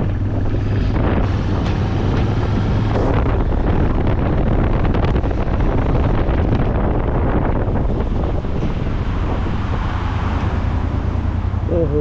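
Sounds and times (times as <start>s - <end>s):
motorcycle engine running: 0.0s - 12.0s
wind buffeting microphone: 0.0s - 12.0s.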